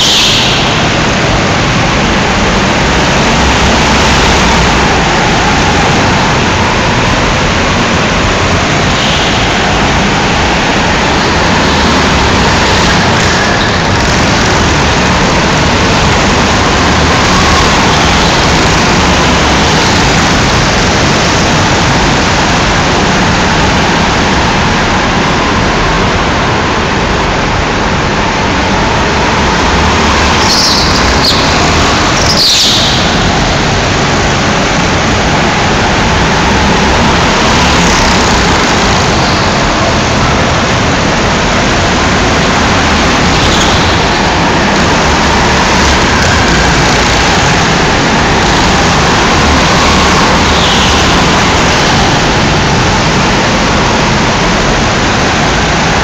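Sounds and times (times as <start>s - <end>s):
go-kart engines echoing: 0.0s - 56.0s
short high squeals: 30.4s - 33.3s.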